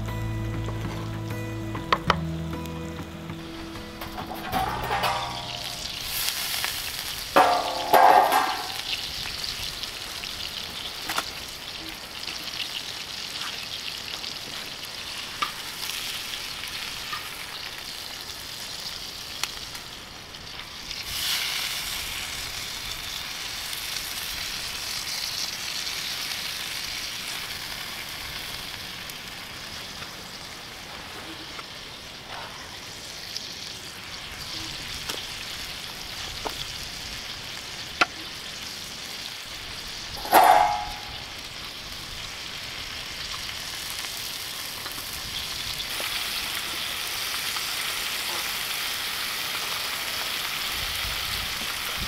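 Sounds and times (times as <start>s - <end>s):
loud ringing clang: 4.0s - 6.0s, 7.4s - 8.9s, 40.2s - 41.3s
meat sizzling in pan: 4.8s - 52.0s.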